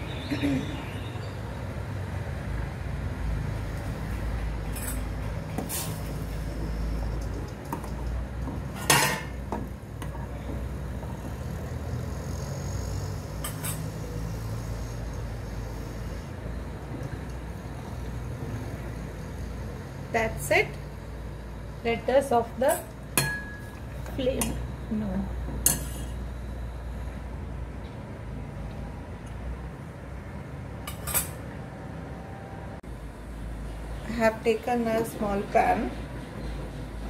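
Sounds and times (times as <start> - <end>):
spoon clinking against pot: 22.7 - 23.8.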